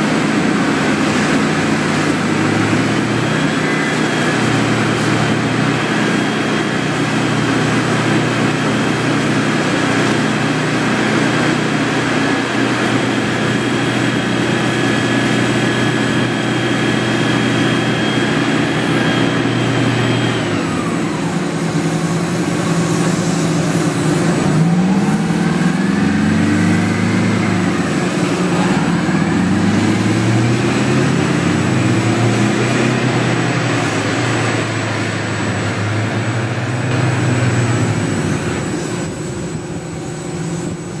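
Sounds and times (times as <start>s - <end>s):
heavy diesel engines revving: 0.0s - 41.0s
steady rushing noise: 0.0s - 41.0s.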